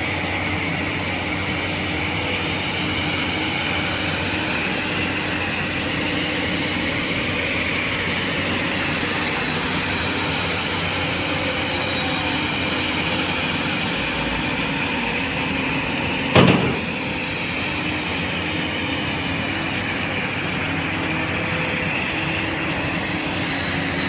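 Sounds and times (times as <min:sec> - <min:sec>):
diesel engine running: 0:00.0 - 0:24.0
loud thump: 0:16.3 - 0:17.0.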